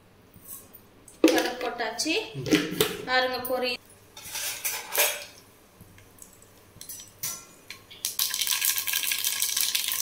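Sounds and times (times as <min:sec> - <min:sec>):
seeds crackling in hot oil: 0:07.9 - 0:10.0.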